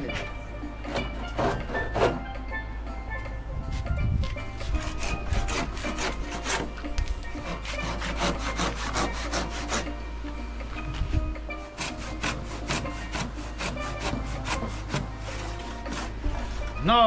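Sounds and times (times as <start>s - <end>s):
hand saw cutting wood: 0.9s - 2.2s, 4.6s - 9.9s, 11.6s - 16.8s.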